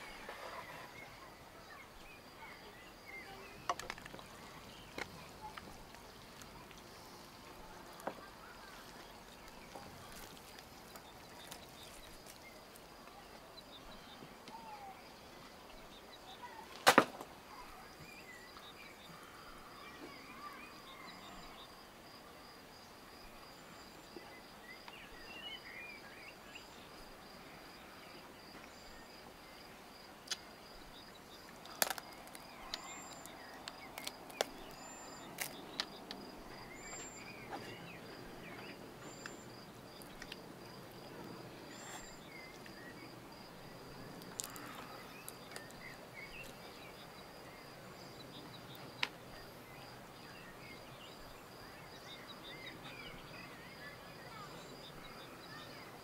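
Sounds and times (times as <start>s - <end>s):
faint bird chirps: 17.5s - 21.8s, 32.1s - 40.4s, 41.6s - 56.0s.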